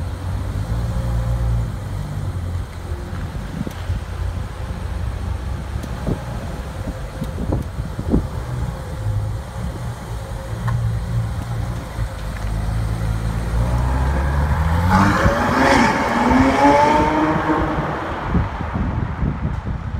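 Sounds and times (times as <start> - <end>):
car engine revving: 8.0 - 18.8.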